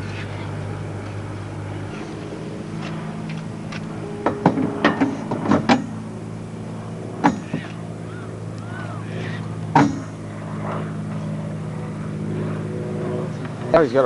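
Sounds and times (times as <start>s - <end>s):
low engine-like hum: 0.0s - 14.0s
sharp metallic knocks: 3.7s - 6.1s, 7.2s - 7.8s, 9.7s - 10.2s.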